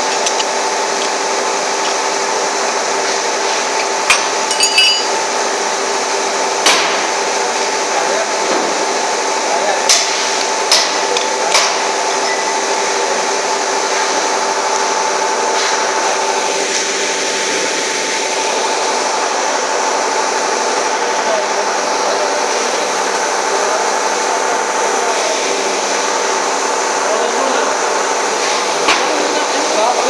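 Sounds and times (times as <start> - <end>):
sharp metal clanks: 4.1 - 5.2.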